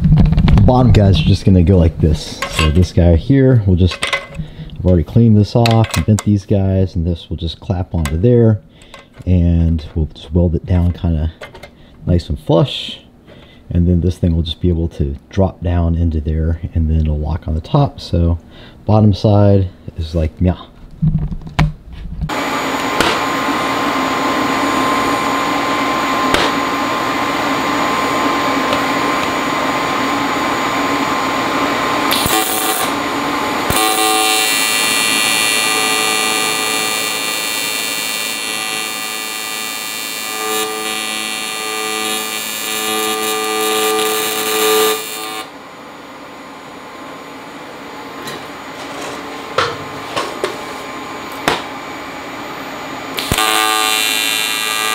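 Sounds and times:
welding arc buzzing with hiss: 22.3s - 45.6s, 53.1s - 54.9s.

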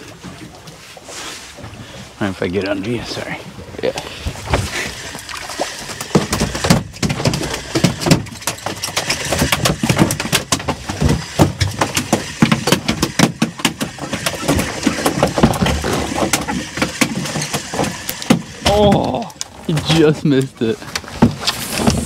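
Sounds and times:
rapid knocking and clattering: 5.8s - 19.0s.

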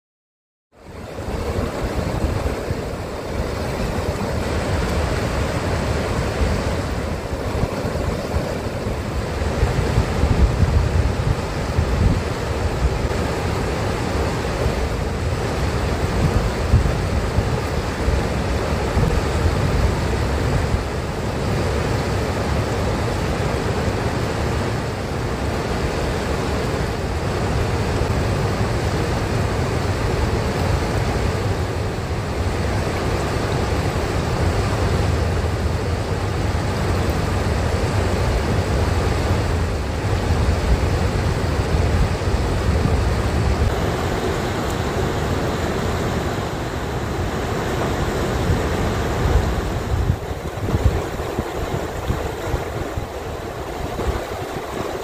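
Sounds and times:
river rushing over rocks: 0.8s - 55.0s
wind rumble on microphone: 0.8s - 55.0s.

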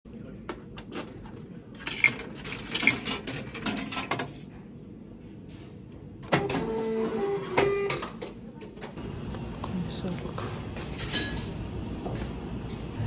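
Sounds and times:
coins clinking into machine: 1.8s - 4.5s.

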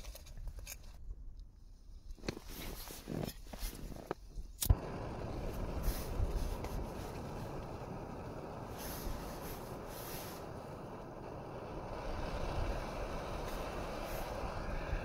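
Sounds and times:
gas burner rushing: 4.6s - 15.0s.

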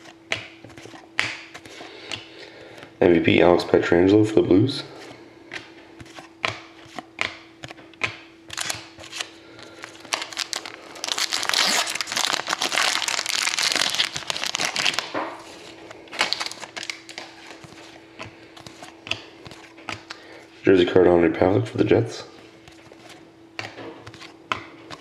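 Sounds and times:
wrapper crinkling and tearing: 8.5s - 17.6s.

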